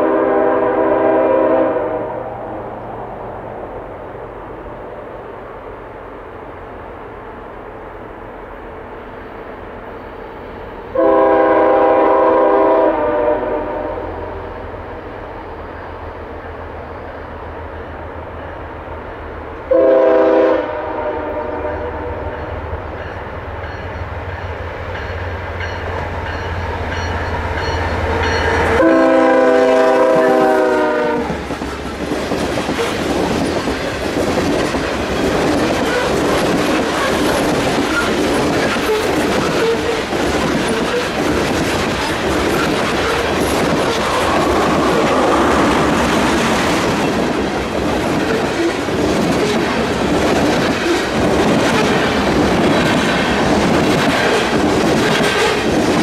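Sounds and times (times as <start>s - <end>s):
locomotive air horn blasts: 0.0s - 2.3s, 11.0s - 14.5s, 19.7s - 22.4s, 28.7s - 31.4s
train wheels on rails: 0.0s - 56.0s
locomotive engine: 22.8s - 55.7s.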